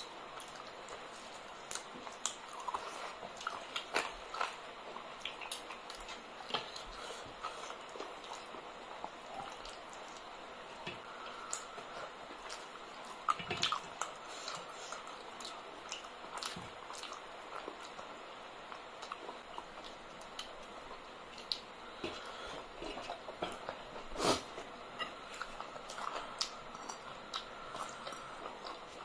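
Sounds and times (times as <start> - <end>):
wet chewing sounds: 0.2 - 29.0.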